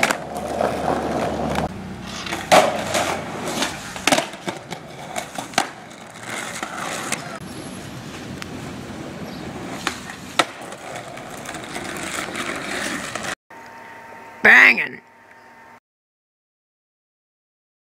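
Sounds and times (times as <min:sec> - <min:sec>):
skateboard clacking on ground: 0:00.0 - 0:07.4, 0:09.4 - 0:13.4
skateboard rolling on asphalt: 0:00.0 - 0:13.4.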